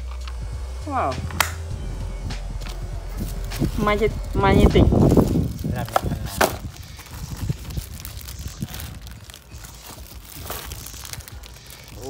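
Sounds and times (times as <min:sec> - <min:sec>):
plastic bag crinkling: 0:03.2 - 0:12.0
cardboard box rustling: 0:05.0 - 0:12.0.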